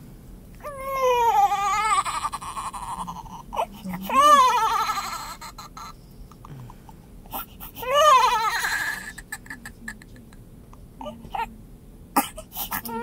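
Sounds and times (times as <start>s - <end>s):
newborn baby crying: 0.6s - 6.0s, 7.3s - 9.8s, 12.2s - 13.0s.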